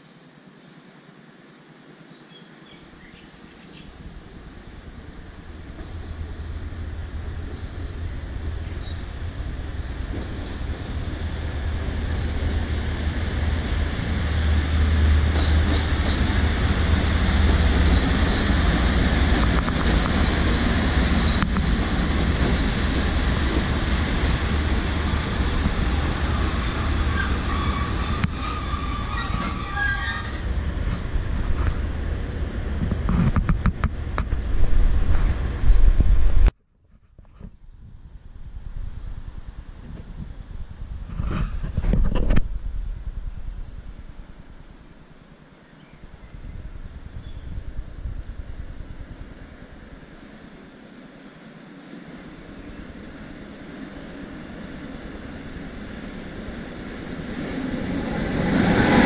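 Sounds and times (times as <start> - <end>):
freight train rumbling past: 3.9 - 36.5, 46.0 - 59.0
high wheel squeal: 17.9 - 24.0, 26.6 - 30.6.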